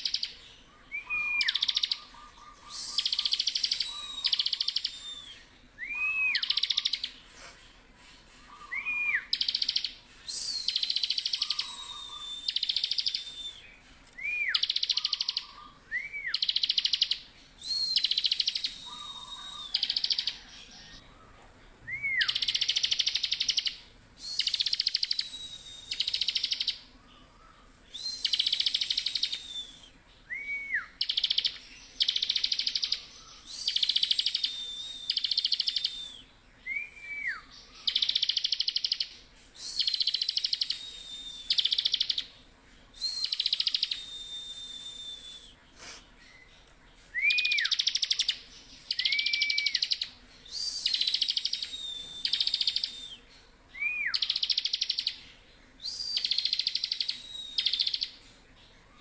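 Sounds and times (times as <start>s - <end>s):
bird trilling song: 0.0s - 7.4s, 8.3s - 21.2s, 21.8s - 58.3s
bird thin whistles: 39.6s - 42.2s, 43.0s - 46.5s, 47.1s - 48.3s, 48.9s - 53.2s, 55.8s - 58.3s.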